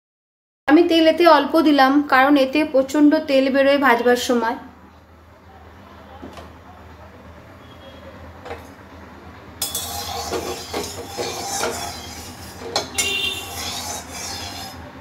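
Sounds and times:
spatula scraping a pan: 9.6 - 15.0.

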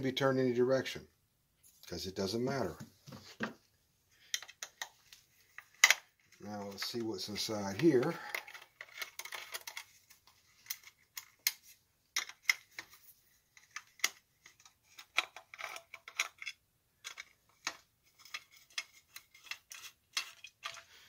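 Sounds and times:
small tools clicking on plastic: 7.8 - 11.6, 13.6 - 21.0.

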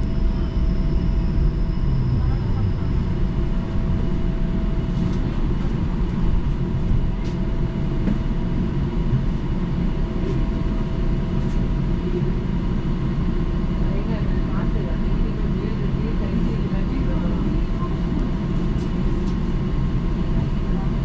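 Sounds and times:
equipment hum: 0.0 - 9.4
low rumble: 0.0 - 12.8.

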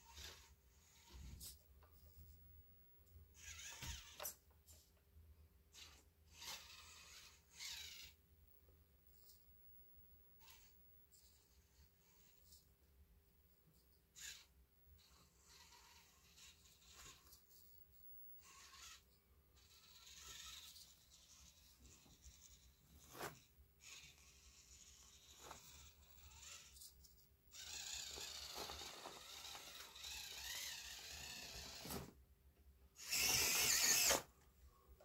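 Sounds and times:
small electric motor whining: 0.0 - 2.1, 3.3 - 4.4, 5.7 - 8.2, 10.3 - 12.7, 14.2 - 17.7, 18.4 - 32.1, 33.0 - 34.3.

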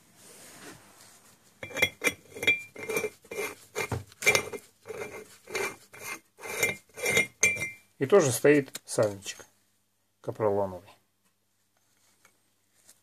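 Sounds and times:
metal cover clinking while screwed: 1.6 - 5.8, 6.4 - 7.8.

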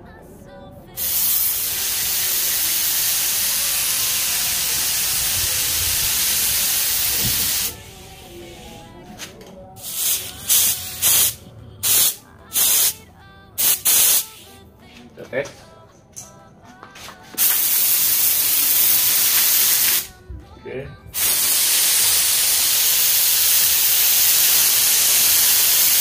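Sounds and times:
short air bursts from spray gun: 1.0 - 8.1, 9.8 - 13.0, 13.6 - 14.5, 17.4 - 20.1, 21.2 - 26.0
spray gun hissing: 1.0 - 8.7, 9.8 - 13.0, 13.6 - 14.5, 17.4 - 20.1, 21.2 - 26.0.

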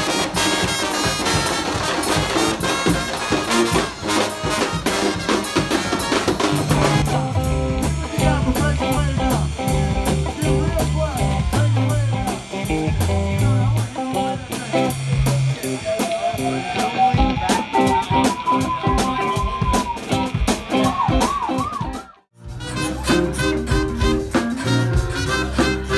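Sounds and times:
brass band playing: 0.0 - 21.2, 22.4 - 25.9
band with drum kit: 0.0 - 25.9
low bass line: 6.5 - 17.4, 22.4 - 25.9.

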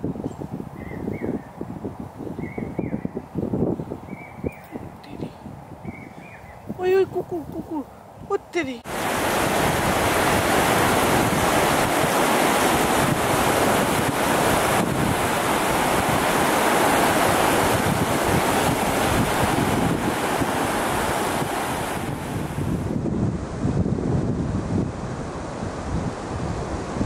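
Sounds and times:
wind on microphone: 0.0 - 27.0
sea surf washing on beach: 8.6 - 27.0.

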